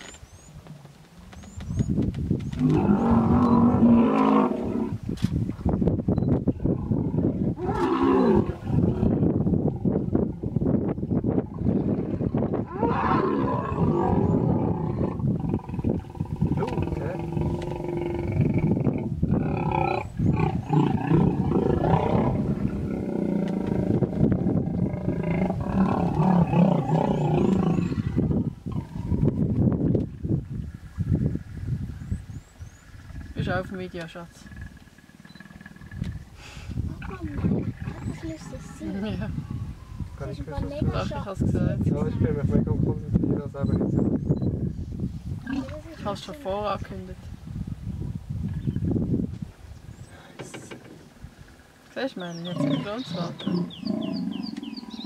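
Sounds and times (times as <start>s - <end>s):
hippopotamus low grunts: 52.4s - 55.0s.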